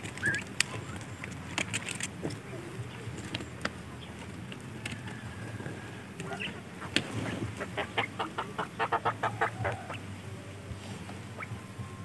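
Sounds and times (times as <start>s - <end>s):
quail clucking chirps: 4.9s - 10.2s, 11.1s - 11.6s.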